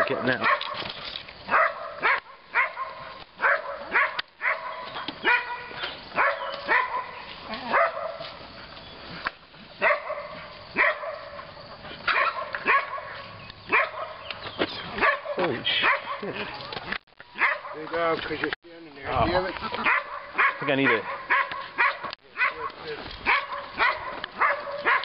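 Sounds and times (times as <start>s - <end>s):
dog barking and yelping: 0.0s - 0.8s, 1.5s - 8.4s, 9.8s - 14.3s, 14.9s - 16.8s, 17.4s - 17.8s, 19.6s - 25.0s.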